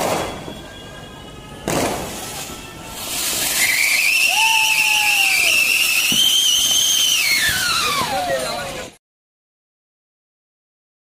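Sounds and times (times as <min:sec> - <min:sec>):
high whistle: 0:00.0 - 0:08.6
lower falling whistle: 0:00.0 - 0:08.6
firework fountain hissing: 0:00.0 - 0:09.0.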